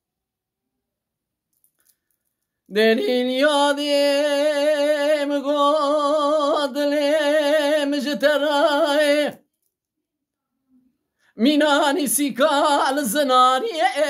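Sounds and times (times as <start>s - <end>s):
man singing unaccompanied: 2.7s - 9.5s, 11.4s - 14.0s.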